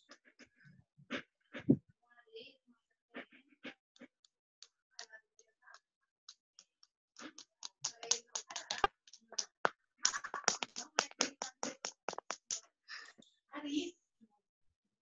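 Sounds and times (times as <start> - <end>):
rapid irregular clicking: 6.3 - 12.6.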